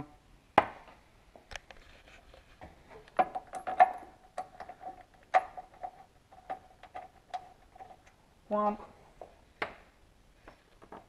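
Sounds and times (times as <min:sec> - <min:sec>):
metal tools clinking: 0:03.0 - 0:08.1.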